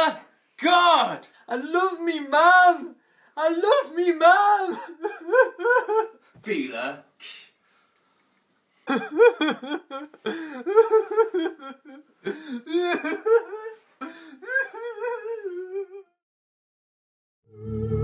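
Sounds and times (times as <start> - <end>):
man wailing: 3.6 - 5.8, 8.9 - 13.8, 14.4 - 16.1.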